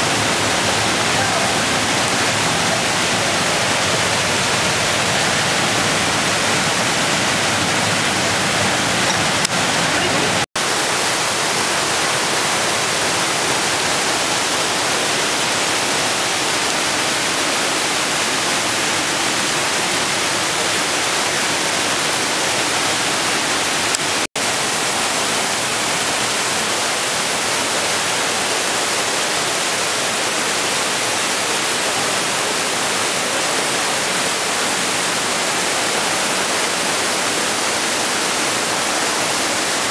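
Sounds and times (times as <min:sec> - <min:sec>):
mountain torrent rushing: 0:00.0 - 0:39.9.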